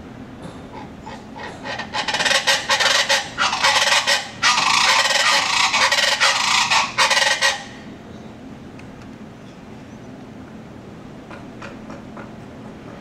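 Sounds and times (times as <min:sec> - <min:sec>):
bird calling with harsh chatter: 0:00.7 - 0:08.4.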